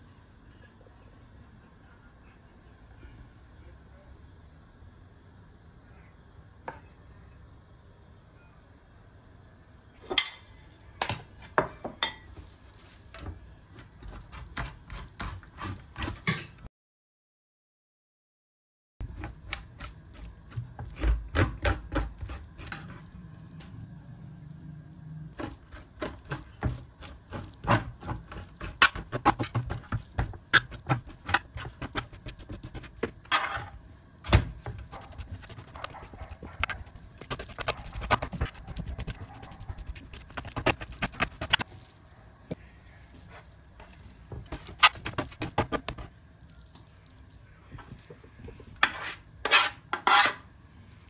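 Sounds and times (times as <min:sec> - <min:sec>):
metal spoon scraping fish: 0:34.9 - 0:41.7.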